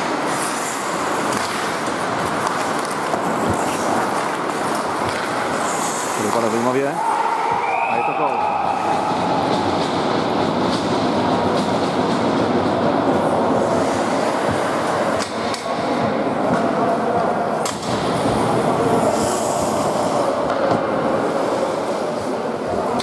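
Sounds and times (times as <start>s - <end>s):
skates on ice: 0.0s - 7.6s
crowd in hall: 0.0s - 23.0s
hockey sticks knocking puck: 1.1s - 6.6s.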